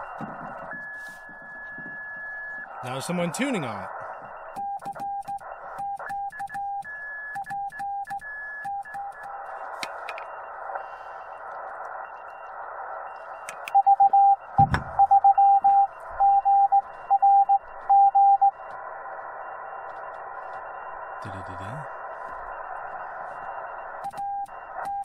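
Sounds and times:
morse code tone: 0:13.7 - 0:18.6
single thump: 0:14.6 - 0:15.0.

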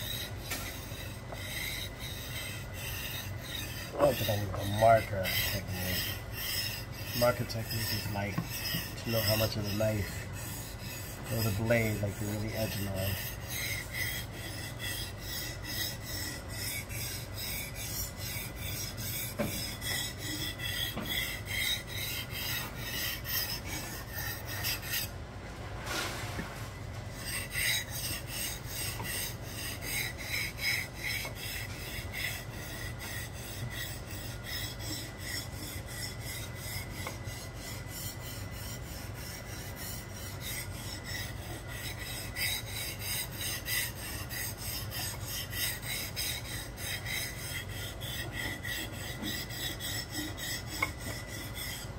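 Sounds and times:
knife scraping on whetstone: 0:00.0 - 0:25.2, 0:25.9 - 0:51.9.

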